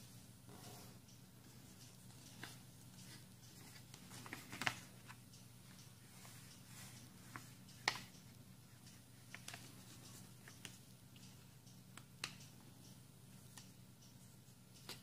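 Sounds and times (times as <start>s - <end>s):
paper being folded and creased: 2.3s - 5.2s.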